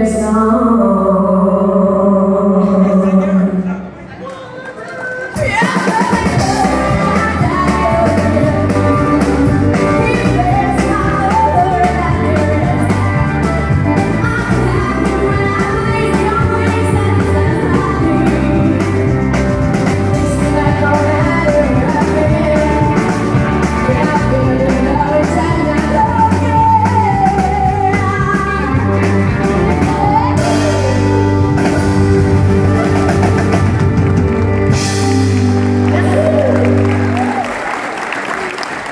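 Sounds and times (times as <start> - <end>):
woman singing: 0.0 - 3.6, 5.4 - 31.9
drum kit: 5.4 - 37.4
electric guitar: 5.4 - 38.5.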